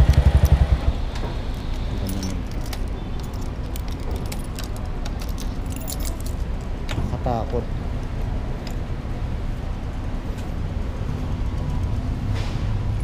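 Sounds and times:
motorcycle engine idling: 0.0s - 1.0s
keys jangling and clicking: 1.4s - 7.1s.

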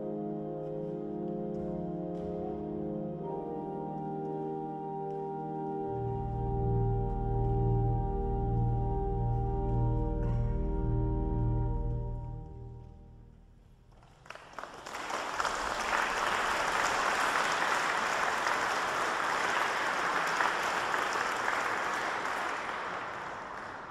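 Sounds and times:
pipe organ chord: 0.0s - 13.6s
audience applauding: 13.9s - 23.9s.

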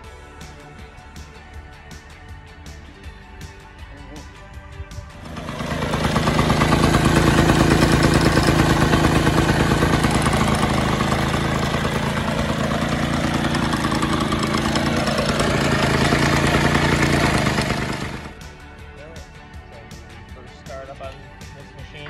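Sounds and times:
two-stroke mower engine running: 5.0s - 18.6s.

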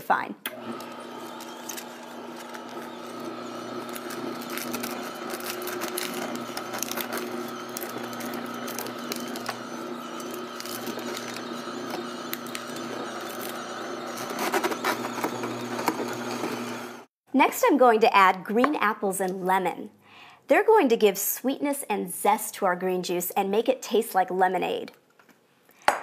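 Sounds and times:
juicer motor hum: 0.5s - 17.1s
lettuce crackling and snapping: 0.7s - 14.1s.

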